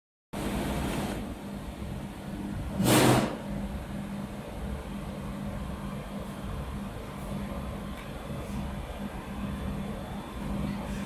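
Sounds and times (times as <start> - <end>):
machine electrical hum: 0.4 - 11.0
brief rush of noise: 2.8 - 3.4.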